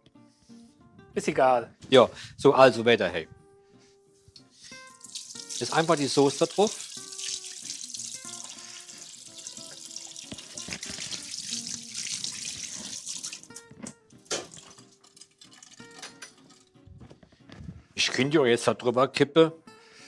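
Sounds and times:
background music: 0.0s - 20.0s
water running from tap: 4.8s - 16.1s.

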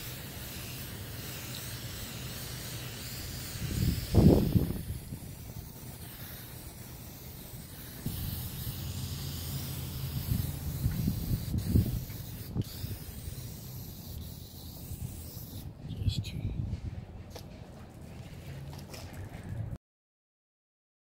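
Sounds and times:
aerosol spray can hissing: 0.0s - 15.7s
steady low rumble: 3.3s - 19.8s.

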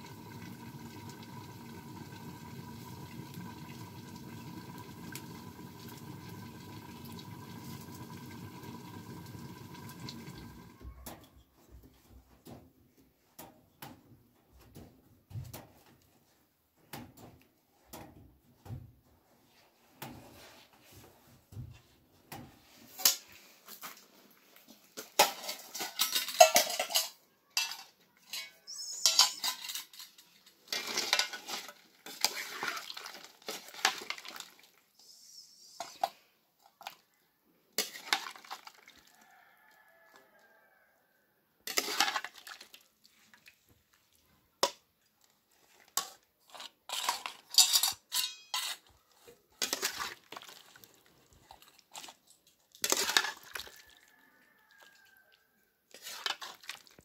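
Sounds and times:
metal ladle clattering on bowls: 25.0s - 34.5s, 41.7s - 42.8s, 46.0s - 49.0s, 52.8s - 54.0s.

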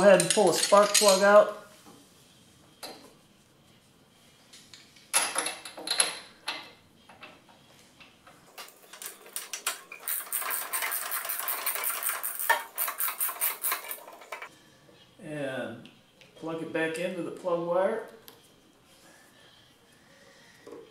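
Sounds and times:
metal scraping and clinking: 0.0s - 1.5s, 8.5s - 14.5s.

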